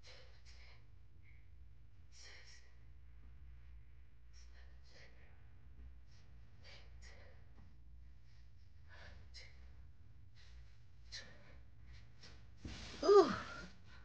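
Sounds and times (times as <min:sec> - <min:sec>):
low room hum: 0:00.0 - 0:14.0
woman breathing effortfully: 0:06.3 - 0:14.0.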